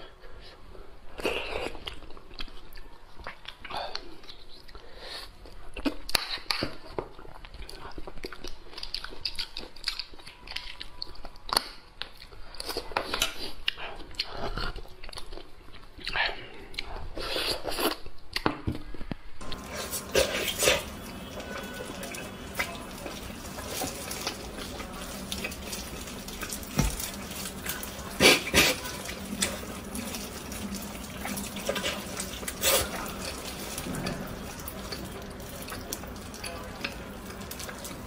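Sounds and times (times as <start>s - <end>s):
wet chewing: 1.1s - 38.0s
sucking at a bone: 27.6s - 29.7s, 31.7s - 33.4s.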